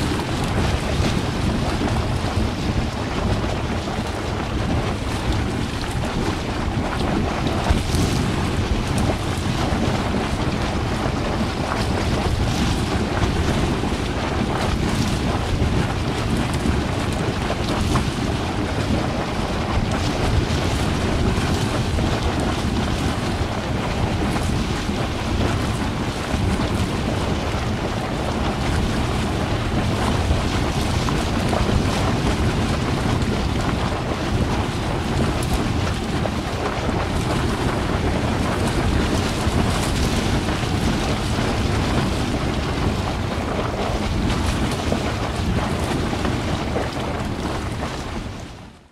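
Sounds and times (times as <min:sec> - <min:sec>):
hot spring water bubbling: 0:00.0 - 0:48.9.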